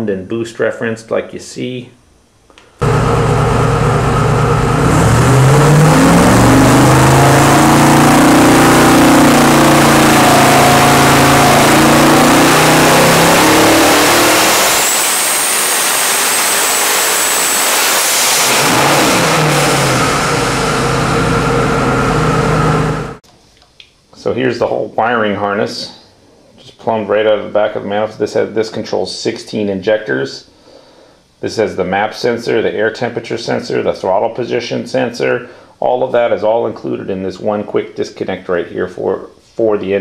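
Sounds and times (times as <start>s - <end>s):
car engine revving: 2.8s - 23.2s
high turbo whistle: 2.8s - 23.2s.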